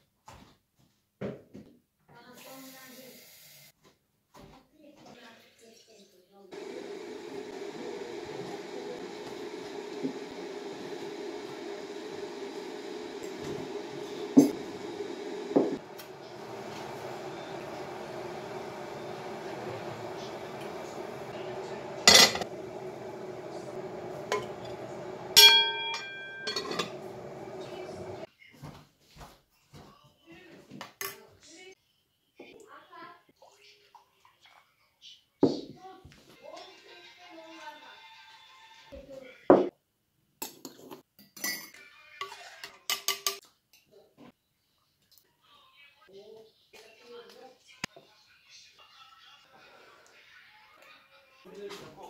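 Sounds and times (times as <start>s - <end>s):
low hum: 6.6s - 28.3s
kitchenware clattering: 12.9s - 28.2s, 42.7s - 43.4s
metal clink ringing: 25.4s - 26.9s.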